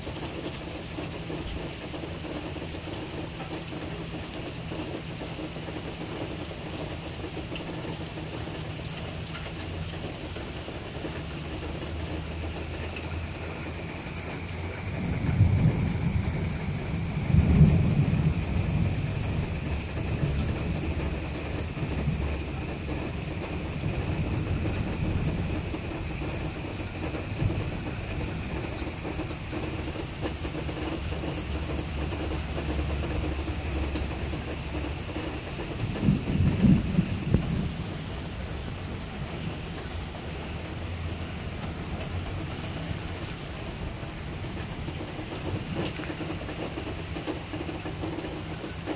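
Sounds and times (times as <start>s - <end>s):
steady rain falling: 0.0s - 48.9s
thunder rumbling: 12.2s - 48.9s.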